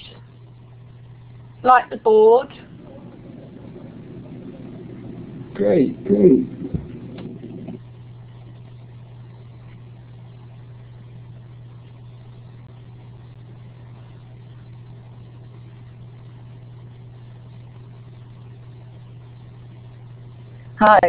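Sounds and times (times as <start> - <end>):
low electrical hum with hiss: 0.0 - 21.0.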